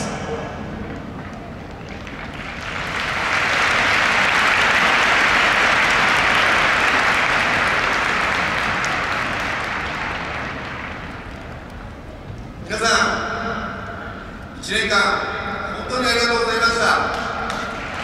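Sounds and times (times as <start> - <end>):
stadium crowd applauding: 0.0 - 12.1, 16.8 - 18.0.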